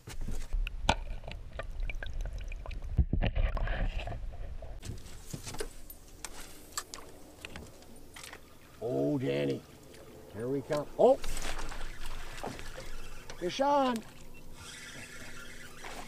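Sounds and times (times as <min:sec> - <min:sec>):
water sloshing and splashing: 0:04.8 - 0:16.0.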